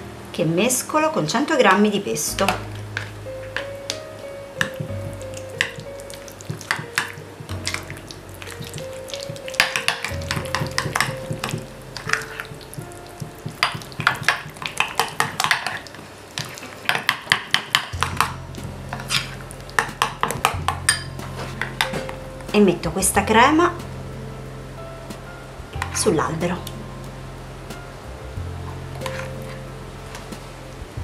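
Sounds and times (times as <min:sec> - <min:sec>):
soft background music: 0:00.0 - 0:31.0
fork tapping glass bowl: 0:06.5 - 0:07.9, 0:08.5 - 0:15.8, 0:19.8 - 0:22.1.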